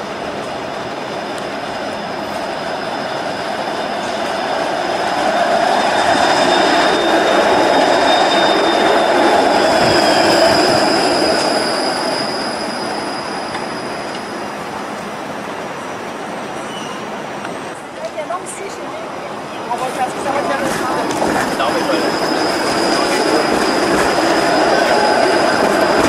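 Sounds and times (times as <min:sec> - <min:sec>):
streetcar rolling on rails: 0:00.0 - 0:26.0
high-pitched whines: 0:21.1 - 0:26.0.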